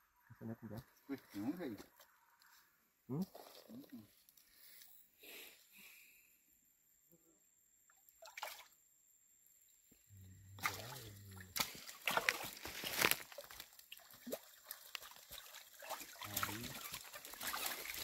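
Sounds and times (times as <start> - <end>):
water splashing and dripping: 10.6 - 18.0.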